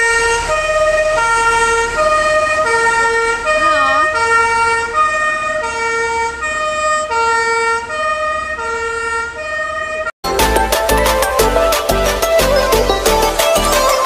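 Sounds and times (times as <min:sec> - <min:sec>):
fire engine two-tone siren: 0:00.0 - 0:10.2
music: 0:10.2 - 0:14.0.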